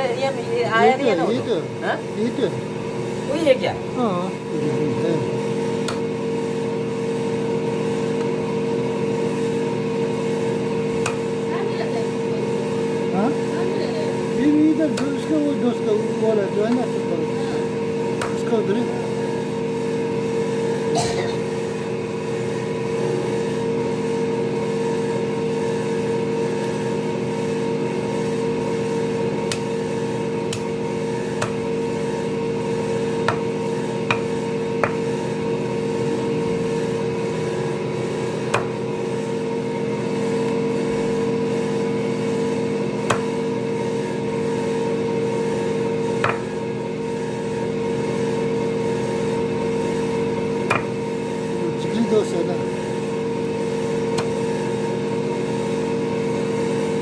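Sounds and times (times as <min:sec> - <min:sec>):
motor humming: 0:00.0 - 0:57.0
knife chopping on wooden block: 0:05.8 - 0:06.1, 0:11.0 - 0:11.2, 0:18.2 - 0:18.5, 0:29.4 - 0:29.8, 0:30.5 - 0:30.7, 0:31.3 - 0:31.6, 0:33.2 - 0:35.2, 0:38.4 - 0:38.8, 0:43.0 - 0:43.4, 0:46.2 - 0:46.6, 0:50.6 - 0:51.0, 0:54.1 - 0:54.4.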